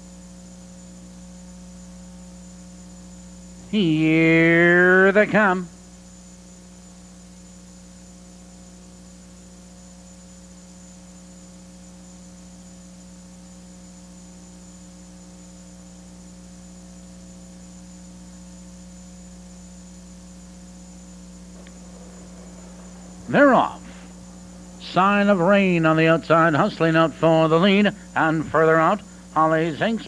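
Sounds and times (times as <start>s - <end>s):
electrical mains hum: 0.0s - 30.0s
faint hiss: 19.6s - 30.0s.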